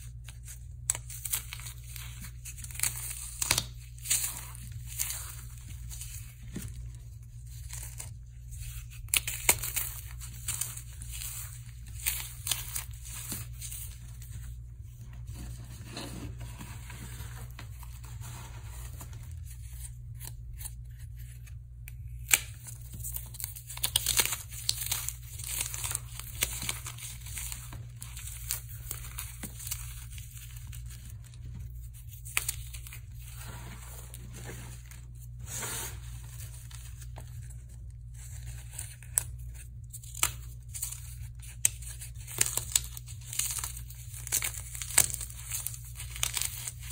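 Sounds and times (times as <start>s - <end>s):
dry foam crackling and crunching: 22.2s - 46.9s.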